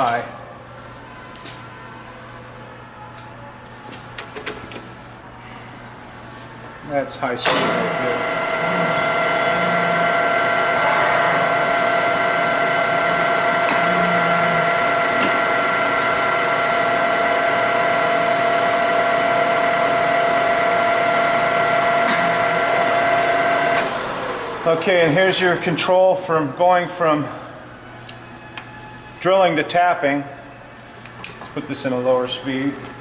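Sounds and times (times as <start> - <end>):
drill press gear whine: 7.4 - 25.4.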